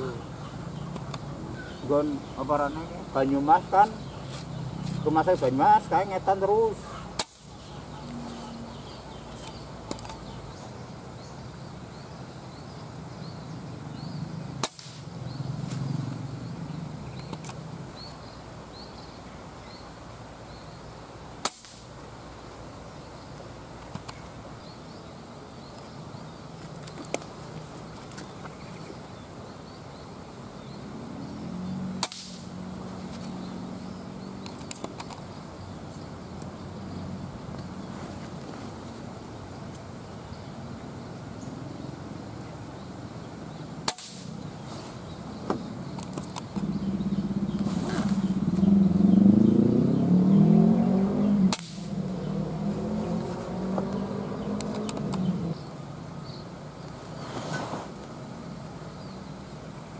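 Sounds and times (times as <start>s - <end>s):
faint bird chirps: 0.0s - 14.6s
air rifle shots: 14.6s - 15.1s, 21.4s - 21.9s, 32.0s - 32.5s, 43.8s - 44.4s, 51.5s - 52.0s.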